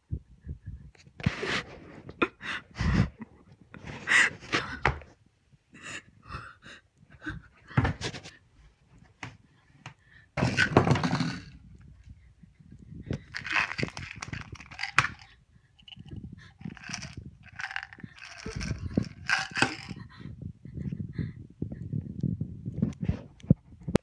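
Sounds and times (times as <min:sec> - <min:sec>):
person breathing hard: 0:02.2 - 0:05.0, 0:05.7 - 0:07.8, 0:11.8 - 0:21.6.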